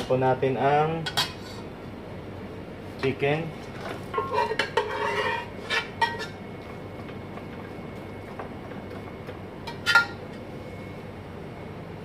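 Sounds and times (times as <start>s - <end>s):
faint kitchen background: 2.8s - 11.0s
spoon scraping a cooking pot: 4.2s - 6.4s.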